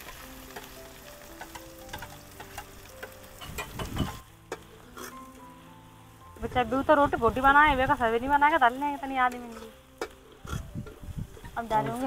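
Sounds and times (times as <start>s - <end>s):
onions sizzling in hot oil: 0.0s - 12.0s
steel spoon scraping pan: 3.4s - 5.3s, 9.2s - 12.0s.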